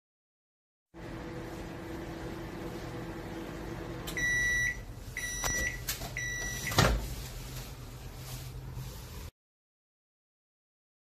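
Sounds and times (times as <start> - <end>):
microwave oven humming: 1.0 - 8.0
microwave beeps: 4.0 - 6.9.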